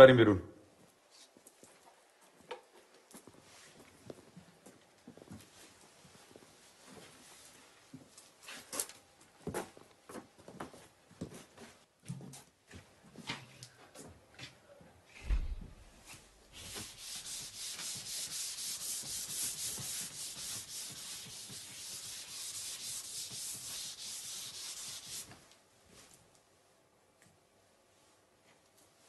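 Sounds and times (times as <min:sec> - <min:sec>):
low thump: 0:15.2 - 0:16.0
eraser rubbing on chalkboard: 0:16.6 - 0:25.3.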